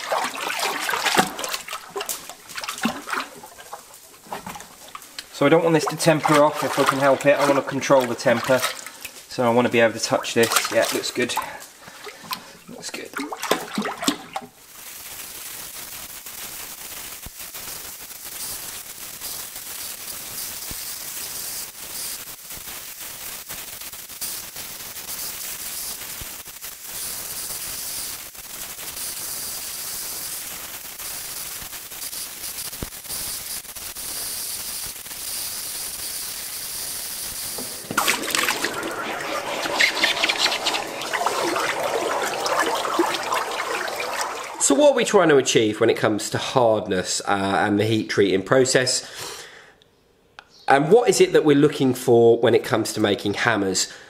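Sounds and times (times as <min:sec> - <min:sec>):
water churning and sloshing: 0:00.0 - 0:09.4, 0:10.0 - 0:14.6, 0:37.6 - 0:45.2
torch flame hissing: 0:14.6 - 0:45.1.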